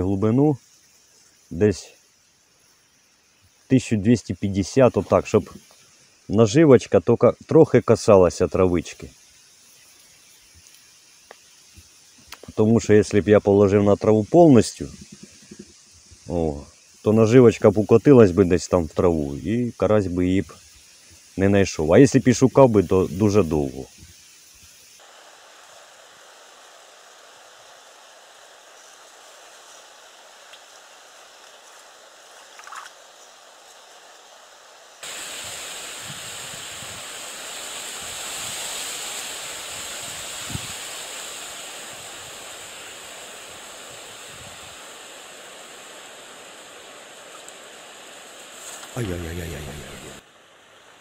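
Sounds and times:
wind buffeting microphone: 35.9s - 37.2s, 40.0s - 40.8s.

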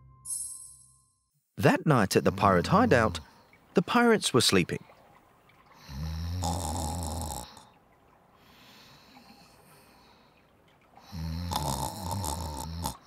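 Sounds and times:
snoring: 5.8s - 7.6s, 11.0s - 13.0s.

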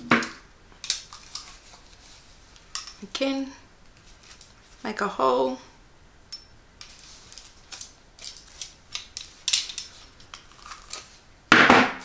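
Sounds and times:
fabric strap rustling: 3.8s - 4.9s, 6.8s - 11.2s.

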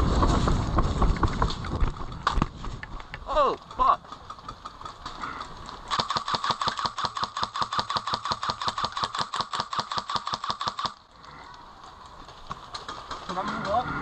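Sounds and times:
airsoft rifle full-auto burst: 5.9s - 11.0s.

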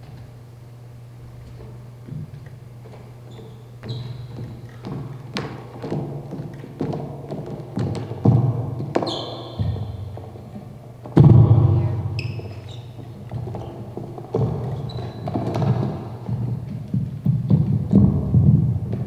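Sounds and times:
thumps and knocks: 3.8s - 19.0s.

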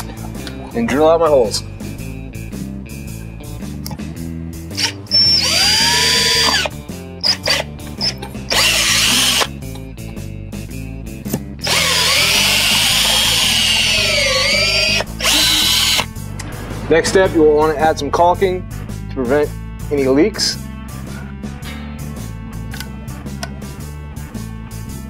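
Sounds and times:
cordless drill boring: 4.8s - 9.5s, 11.6s - 16.1s.

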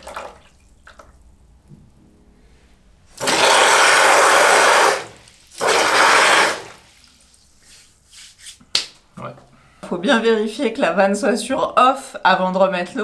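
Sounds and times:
water gushing into a bucket: 0.0s - 1.1s, 3.2s - 7.6s.

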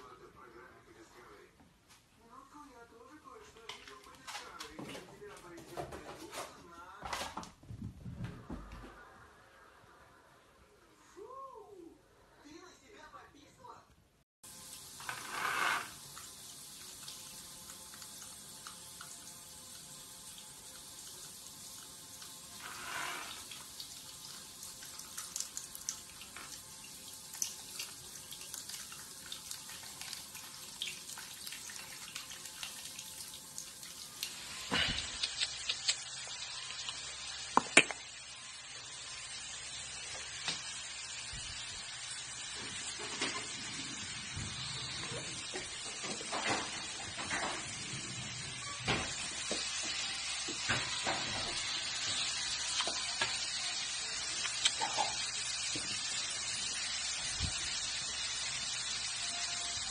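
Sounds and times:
shower head spraying water: 14.5s - 59.9s.

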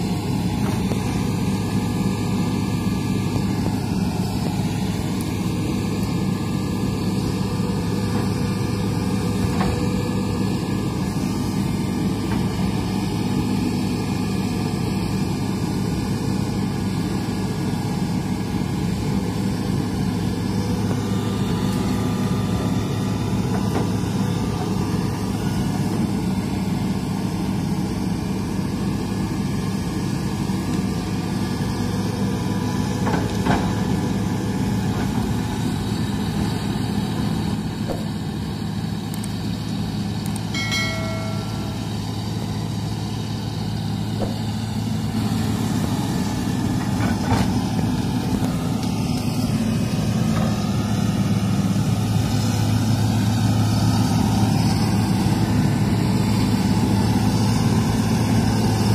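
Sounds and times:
excavator diesel engine running: 0.0s - 58.9s
brief high-pitched tone: 40.5s - 42.4s.

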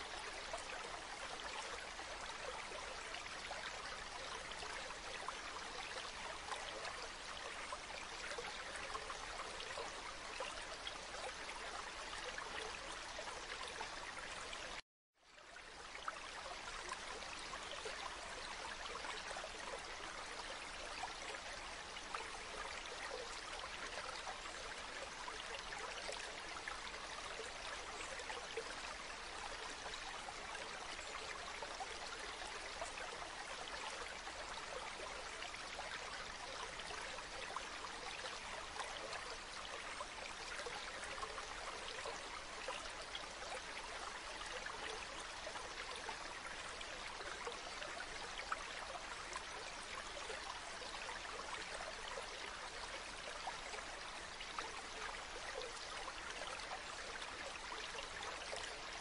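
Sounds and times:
water flowing over pebbles: 15.4s - 59.0s.

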